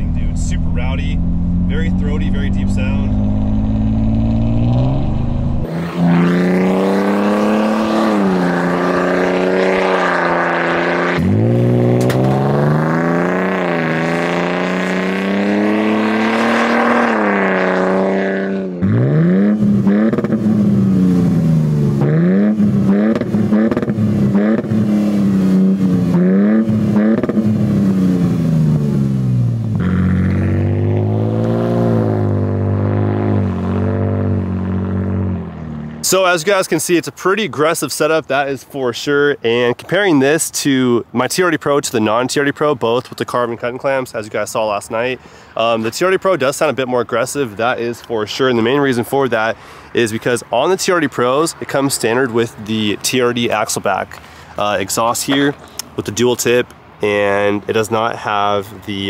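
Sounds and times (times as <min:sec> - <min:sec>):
engine accelerating with throaty exhaust: 0:00.0 - 0:36.4.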